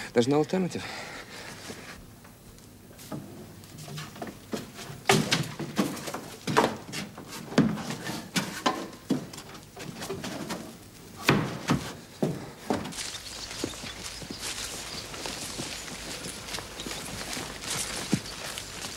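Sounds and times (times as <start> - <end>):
footsteps scuffing on wooden floor: 11.2 - 18.9.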